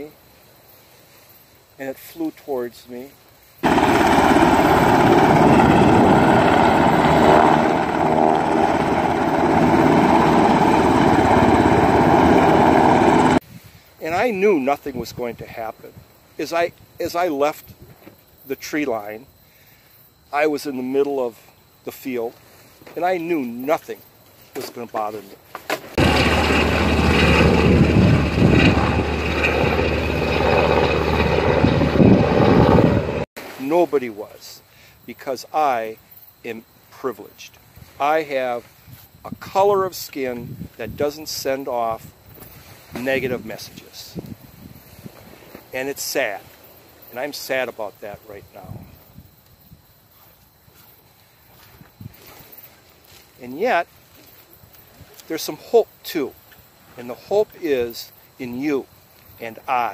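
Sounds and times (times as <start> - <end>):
helicopter hovering: 3.6 - 13.4, 26.0 - 33.3.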